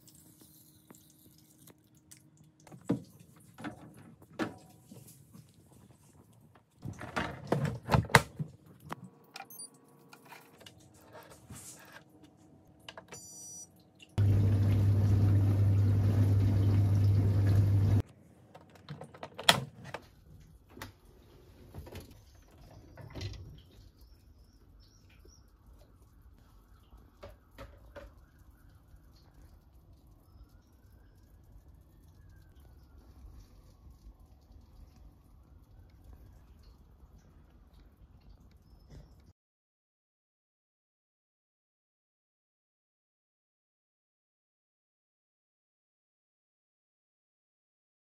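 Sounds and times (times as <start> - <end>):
dishwasher humming: 14.2 - 18.0.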